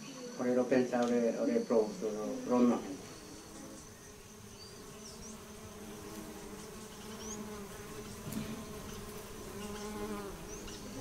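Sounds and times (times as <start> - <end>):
bees buzzing: 0.0 - 11.0
faint high chirps: 1.4 - 5.4.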